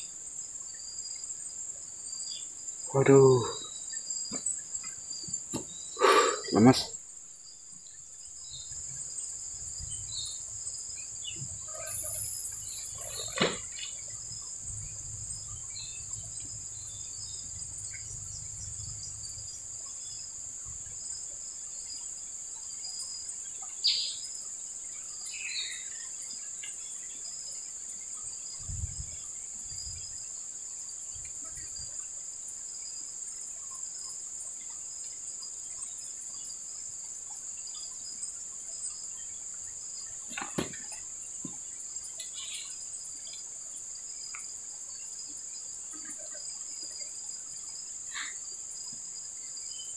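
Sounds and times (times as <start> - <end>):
insects droning: 0.0 - 49.9
bird chirps: 2.0 - 7.0, 9.8 - 14.4, 42.2 - 42.8.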